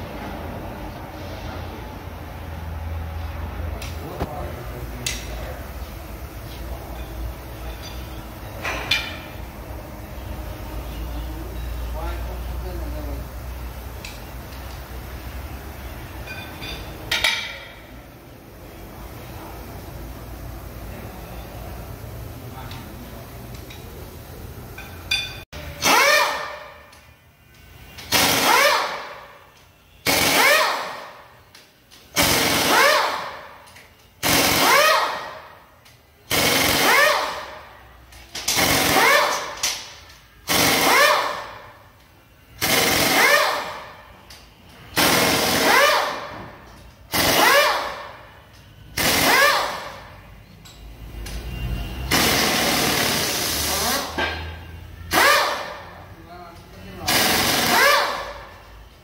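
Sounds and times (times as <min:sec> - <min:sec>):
impact wrench hammering: 0:07.7 - 0:09.4, 0:16.2 - 0:17.8, 0:24.8 - 0:27.1, 0:27.9 - 0:41.8, 0:42.5 - 0:51.4, 0:52.1 - 0:56.0, 0:57.0 - 0:58.6.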